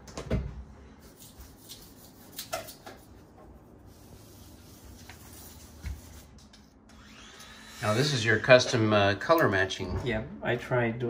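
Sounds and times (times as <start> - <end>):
hand rubbing on countertop: 1.0 - 6.4.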